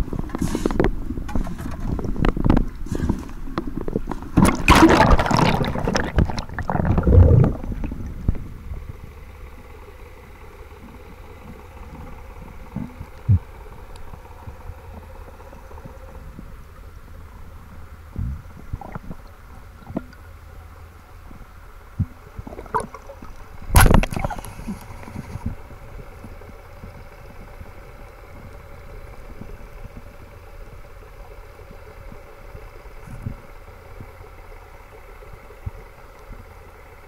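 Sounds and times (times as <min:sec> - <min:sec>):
faint steady hum: 0:00.0 - 0:37.0
water splashing and churning: 0:01.3 - 0:08.8, 0:22.1 - 0:25.7
muffled underwater ambience: 0:01.9 - 0:37.0.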